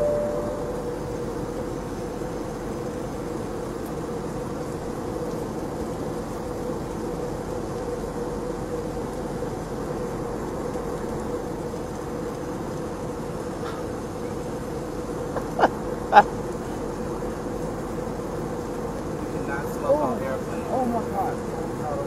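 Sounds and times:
short tone: 0.0 - 1.0
airliner cabin drone: 0.0 - 22.0
steady hum: 0.0 - 22.0.

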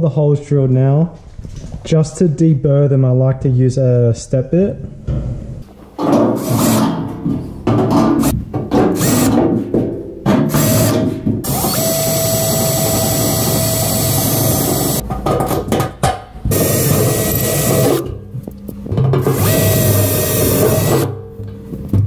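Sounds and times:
cordless drill cutting sheet steel: 9.0 - 9.4, 10.5 - 15.0, 16.5 - 18.1, 19.3 - 21.1.

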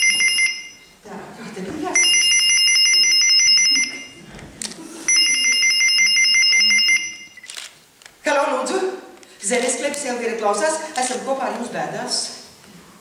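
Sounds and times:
electronic telephone ringing: 0.0 - 0.9, 2.0 - 4.2, 5.1 - 7.5.

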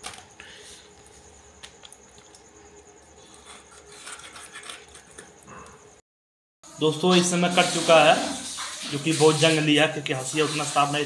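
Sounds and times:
fish scraping against blade: 3.4 - 5.3.

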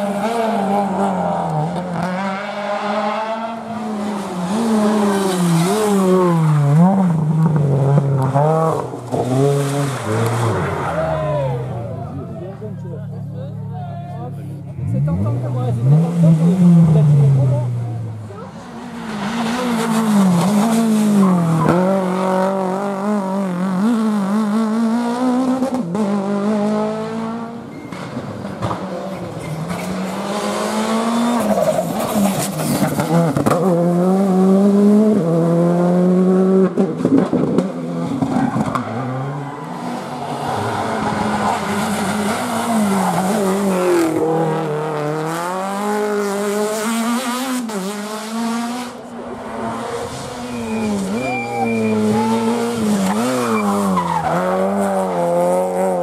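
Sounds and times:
rally car engines revving: 0.0 - 56.0
tyres squealing: 50.4 - 54.5.

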